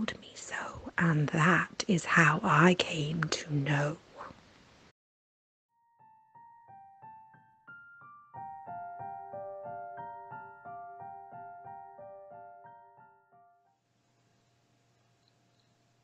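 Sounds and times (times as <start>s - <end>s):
quiet piano music: 5.7s - 13.8s.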